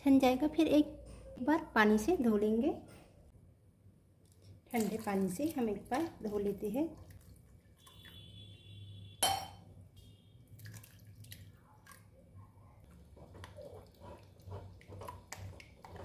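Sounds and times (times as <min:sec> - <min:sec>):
water dripping through cloth: 0:04.2 - 0:08.4, 0:10.0 - 0:14.0.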